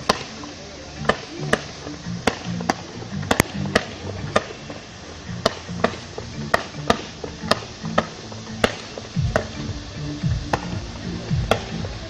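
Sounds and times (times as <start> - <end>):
fireworks cracking: 0.0 - 12.0
music playing: 0.0 - 12.0.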